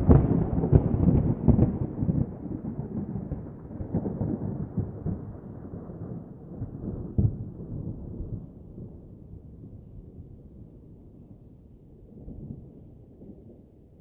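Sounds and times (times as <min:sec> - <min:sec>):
thunder rumbling: 0:00.0 - 0:09.6.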